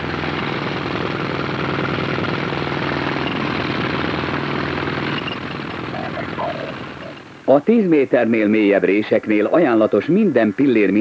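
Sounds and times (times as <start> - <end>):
jackhammer hammering concrete: 0.0 - 7.4.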